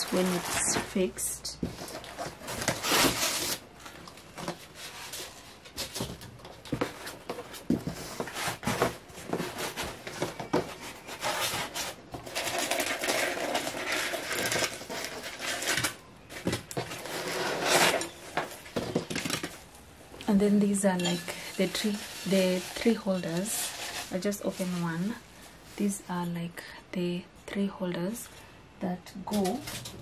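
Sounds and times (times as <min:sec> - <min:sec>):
packing material rustling: 0:00.0 - 0:19.7, 0:21.3 - 0:25.2
cardboard box scraping: 0:16.8 - 0:18.9.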